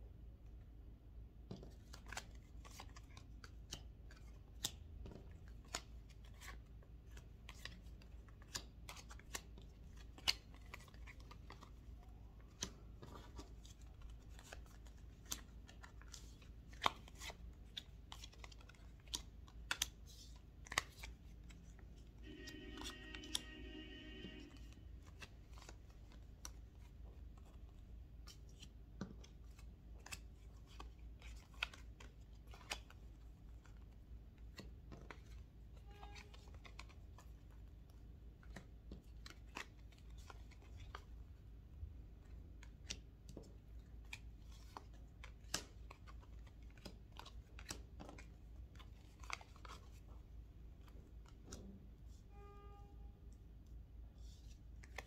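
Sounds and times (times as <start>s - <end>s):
cards clicking and tapping: 1.5s - 11.7s, 12.5s - 21.3s, 42.5s - 50.0s.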